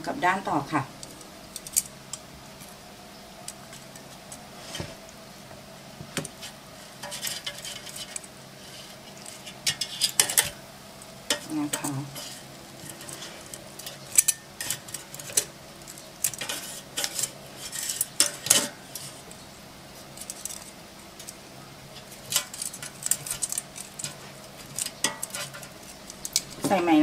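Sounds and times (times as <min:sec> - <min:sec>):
metal tongs clicking and scraping: 0:22.0 - 0:26.6.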